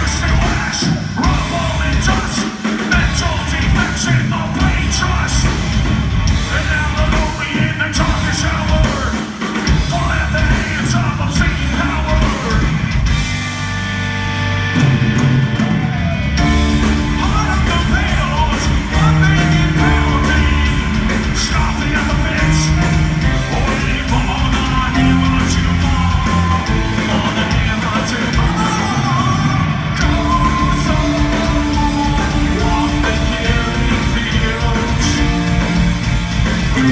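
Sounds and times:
vocalist singing and yelling: 0:00.0 - 0:13.1, 0:15.5 - 0:36.9
live heavy rock band: 0:00.0 - 0:36.9
pounding drums: 0:00.0 - 0:36.9.

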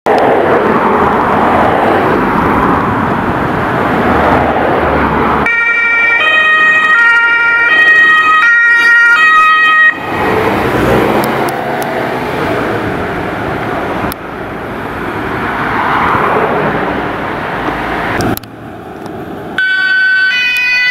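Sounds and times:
vehicle engine rumble: 0:00.1 - 0:08.5, 0:09.1 - 0:20.0
two-tone siren: 0:05.4 - 0:10.2, 0:19.6 - 0:20.9.

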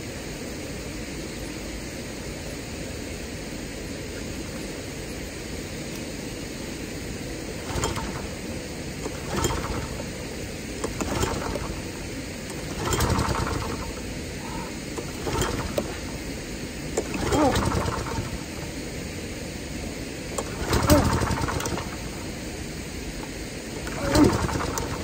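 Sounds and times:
small engine turning over: 0:07.5 - 0:19.0, 0:20.2 - 0:22.6, 0:23.7 - 0:25.0
recoil starter pull: 0:07.5 - 0:19.2, 0:20.2 - 0:25.0.

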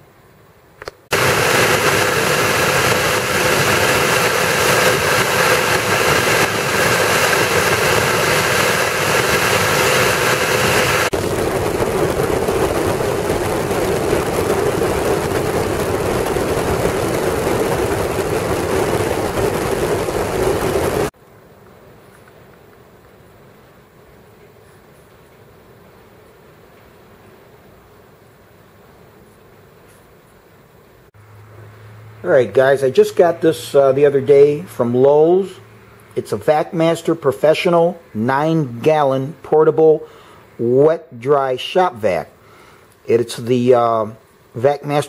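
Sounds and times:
shop vacuum motor running: 0:01.1 - 0:21.1.

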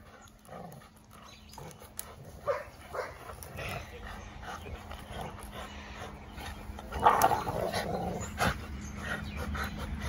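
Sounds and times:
dogs growling: 0:00.0 - 0:10.0.

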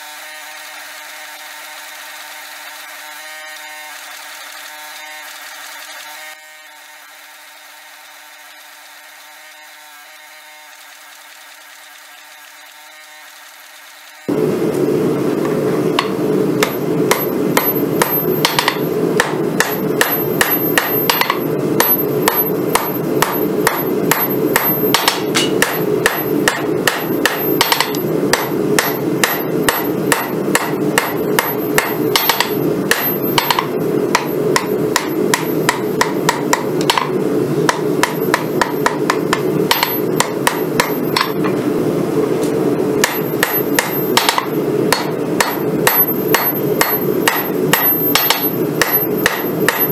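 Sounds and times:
steady background roar: 0:14.3 - 0:49.9
hammer striking metal on anvil: 0:15.4 - 0:41.6, 0:43.0 - 0:49.9.

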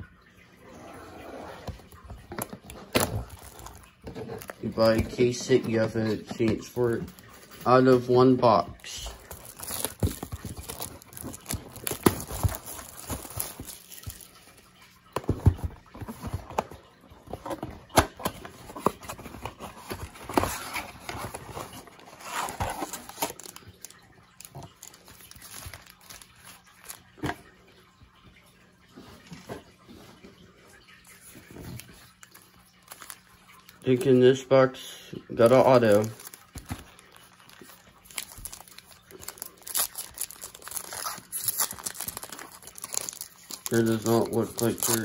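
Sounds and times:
cardboard box opening: 0:01.2 - 0:06.7, 0:09.2 - 0:14.3, 0:15.2 - 0:23.6, 0:37.6 - 0:45.0
plastic wrap crinkling: 0:02.2 - 0:16.6, 0:17.5 - 0:27.3, 0:31.3 - 0:34.1, 0:35.4 - 0:45.0
foil packs rustling: 0:02.3 - 0:14.6, 0:15.2 - 0:27.5, 0:31.2 - 0:34.4, 0:35.4 - 0:45.0.

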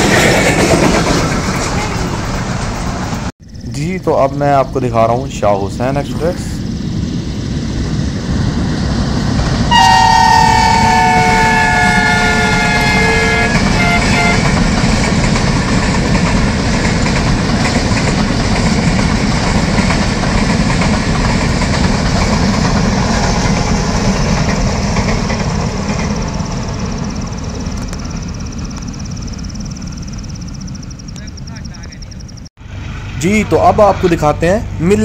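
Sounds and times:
train passing: 0:00.0 - 0:35.0
train horn: 0:09.7 - 0:14.6.

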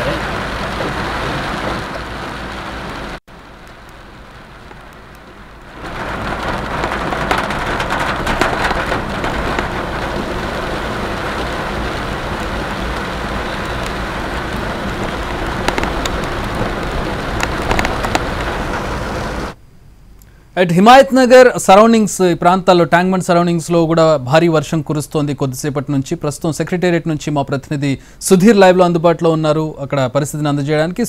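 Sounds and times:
heavy rain hissing: 0:00.0 - 0:19.6
sharp drop taps: 0:15.6 - 0:16.3.

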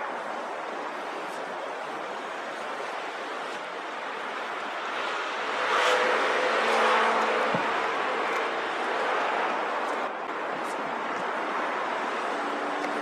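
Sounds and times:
street traffic noise: 0:00.0 - 0:13.0
car passing close by: 0:04.8 - 0:09.9.

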